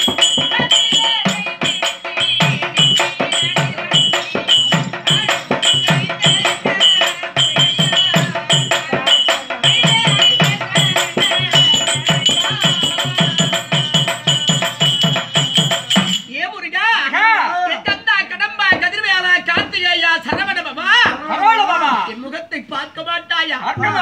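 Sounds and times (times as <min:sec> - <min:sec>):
hand drum beating: 0:00.0 - 0:16.2, 0:23.8 - 0:24.0.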